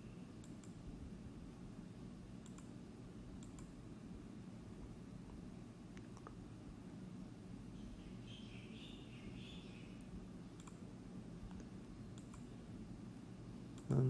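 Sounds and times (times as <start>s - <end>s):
low room hiss: 0.0s - 14.0s.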